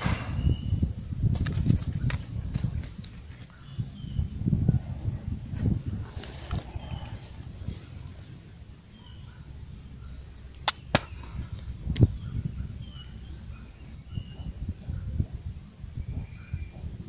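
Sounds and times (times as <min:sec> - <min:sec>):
low rumble: 0:03.8 - 0:08.8
sharp clicks: 0:10.5 - 0:11.3.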